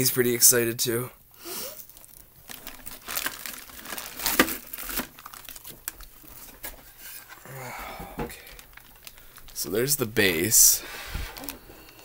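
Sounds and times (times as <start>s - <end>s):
packaging crinkling and rustling: 1.7s - 7.5s, 8.2s - 12.0s.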